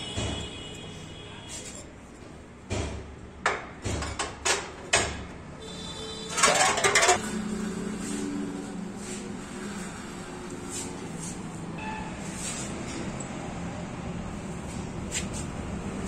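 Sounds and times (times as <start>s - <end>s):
metallic clatter: 6.3s - 7.4s.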